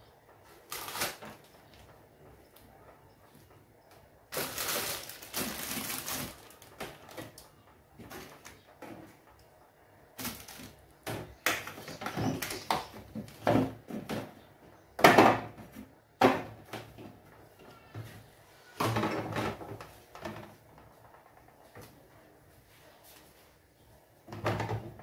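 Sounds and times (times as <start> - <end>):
food rustling and knocking in fridge: 4.3 - 9.3, 10.2 - 22.0, 24.2 - 25.0.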